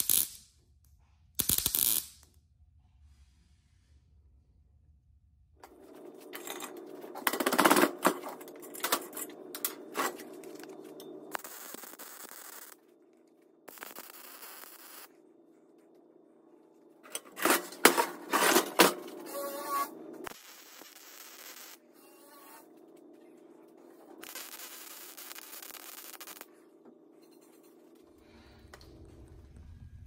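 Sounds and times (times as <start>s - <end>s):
welder arc crackling: 0.0s - 0.4s, 1.4s - 2.2s, 8.8s - 12.8s, 13.7s - 15.1s, 19.3s - 21.8s, 24.2s - 26.5s
steady hum: 5.6s - 30.0s.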